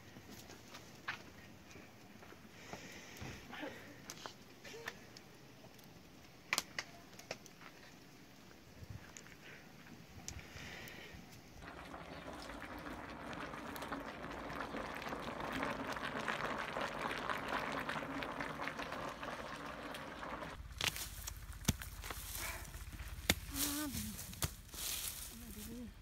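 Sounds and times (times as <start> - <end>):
cauldron boiling and crackling: 3.8 - 26.0
low rumble: 17.8 - 26.0.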